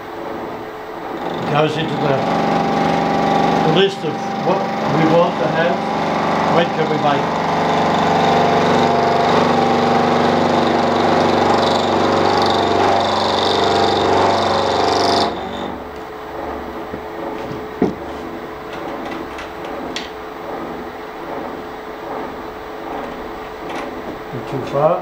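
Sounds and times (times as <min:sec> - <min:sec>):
milling machine running: 0:00.0 - 0:25.0
knock on rotary table: 0:17.3 - 0:19.2.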